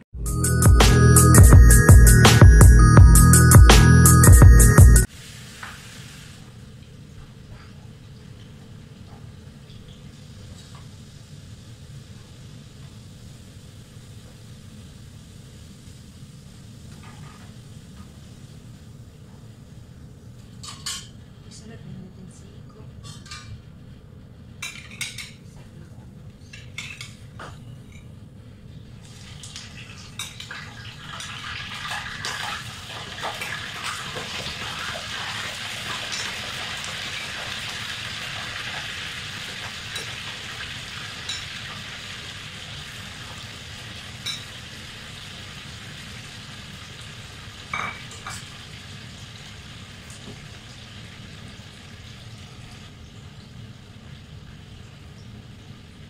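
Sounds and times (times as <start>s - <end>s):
meatballs sizzling in oil: 5.0s - 21.0s, 29.0s - 56.0s.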